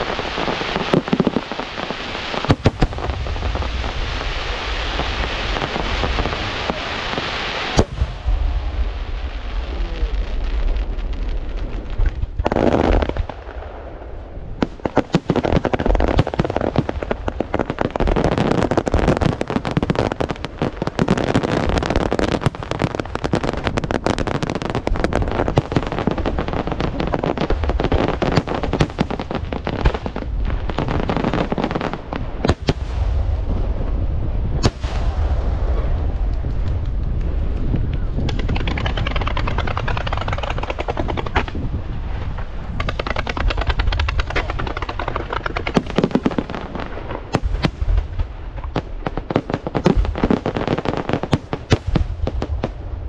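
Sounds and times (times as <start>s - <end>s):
fireworks bangs and crackling: 0.0s - 53.0s
low rumble: 7.8s - 12.5s, 32.8s - 45.8s.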